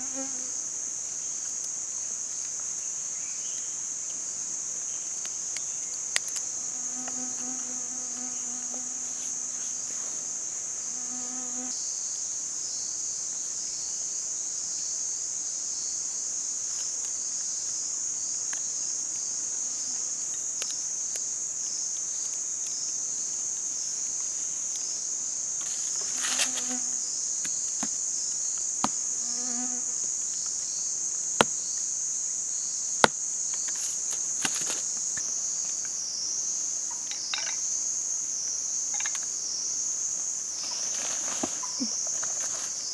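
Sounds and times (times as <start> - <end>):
flying insect buzzing: 0.0 - 0.6, 6.3 - 11.8, 23.2 - 31.8
high-pitched insect chorus: 0.0 - 42.9.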